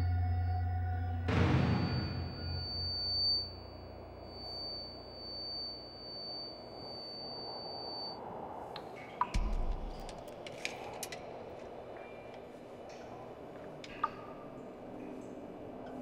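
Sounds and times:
high-pitched ringing tone: 0.0s - 8.2s
low thump: 1.3s - 3.4s.

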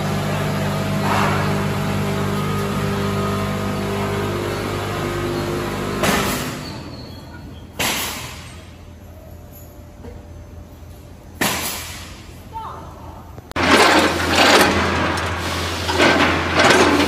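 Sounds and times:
packing machine motor hum: 0.0s - 6.9s, 13.6s - 17.0s.

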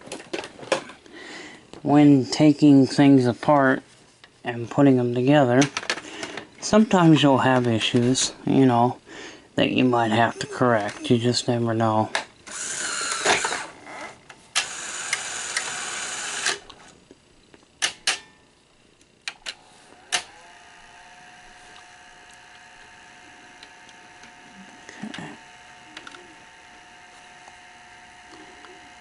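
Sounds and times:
machine humming: 4.5s - 29.0s
tape mechanism whirring: 12.1s - 17.0s, 19.0s - 29.0s
sharp mechanical clicks: 14.6s - 16.8s.

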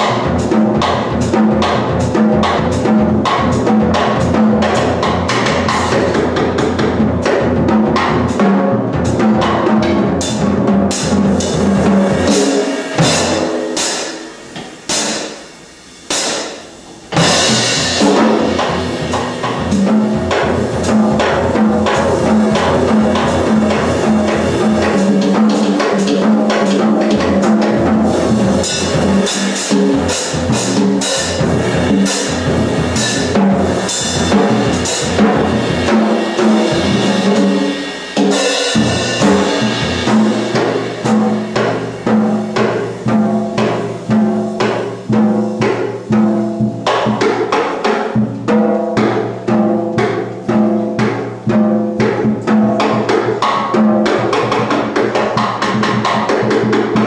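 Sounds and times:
drums struck rapidly: 0.0s - 57.0s.

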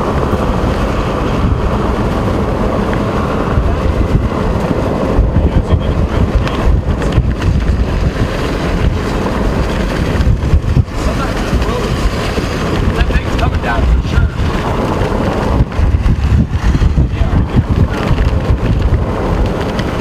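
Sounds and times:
vehicle road rumble: 0.0s - 20.0s
wind buffeting microphone: 0.0s - 20.0s.

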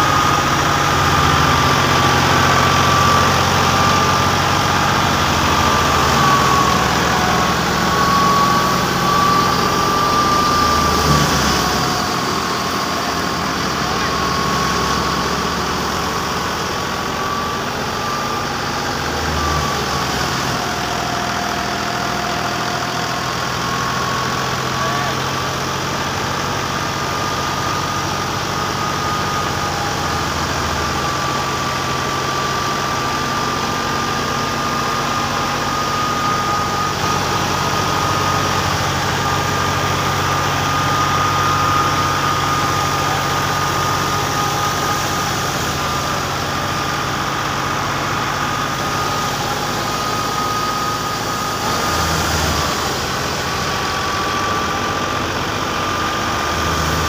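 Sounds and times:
high whine of thresher: 0.0s - 57.0s
tractor engine hum: 0.0s - 57.0s.

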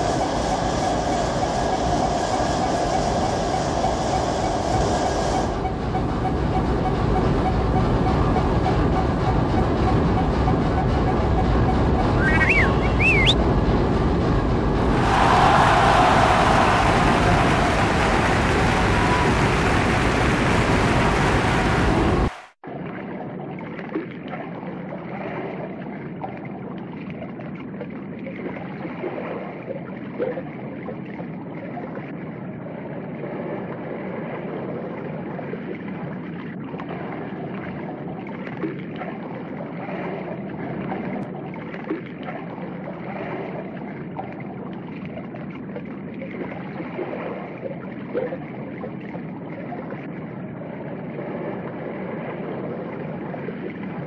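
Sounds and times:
circulating water wash: 0.0s - 22.5s.

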